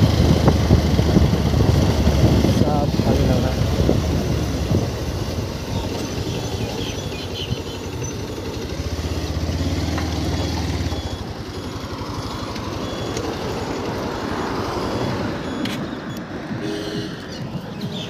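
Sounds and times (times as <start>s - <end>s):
motorcycle engine running: 0.0s - 18.0s
road and traffic noise: 0.0s - 18.0s.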